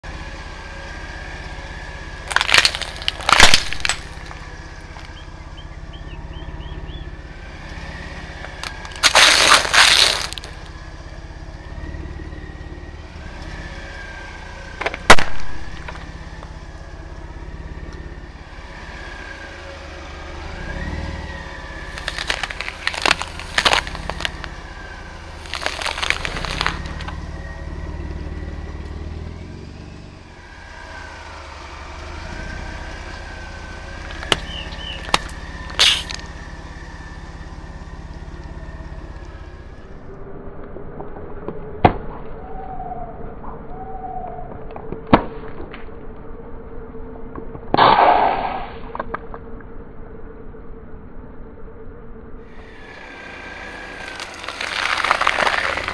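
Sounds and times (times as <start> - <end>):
low engine rumble: 0.0 - 47.8, 48.8 - 55.9
tire crushing plastic cups: 2.0 - 6.0, 8.3 - 11.2, 14.7 - 16.6, 21.5 - 28.1, 30.5 - 39.9, 52.6 - 55.9.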